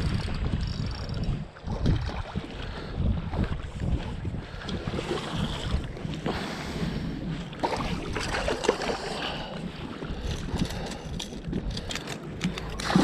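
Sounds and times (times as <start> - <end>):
wind on microphone: 0.0 - 8.8
choppy water against metal boat: 0.0 - 13.0.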